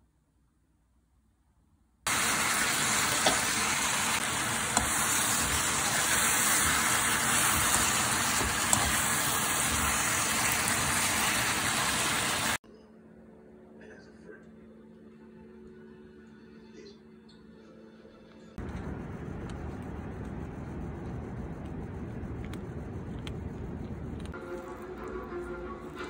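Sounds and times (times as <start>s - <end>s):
meat and onions sizzling in a pan: 2.1s - 12.6s.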